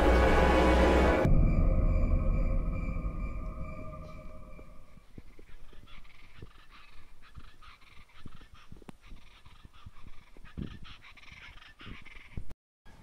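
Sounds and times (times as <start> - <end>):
low thumps: 0.0 - 5.3
irregular animal calls: 3.6 - 12.5.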